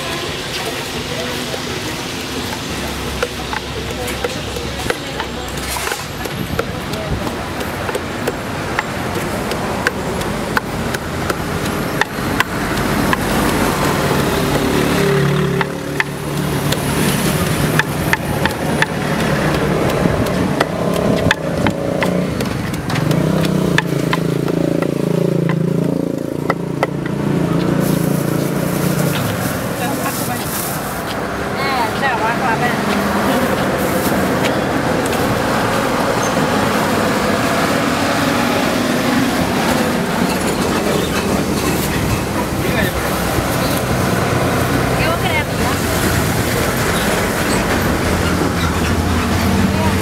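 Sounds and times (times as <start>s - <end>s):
wooden pestle pounding in mortar: 0.6s - 30.1s.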